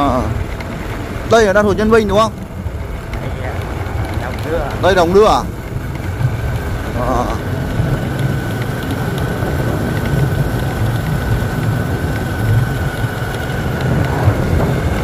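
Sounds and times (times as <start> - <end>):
vehicle running: 0.0 - 15.0
wind buffeting microphone: 0.0 - 15.0.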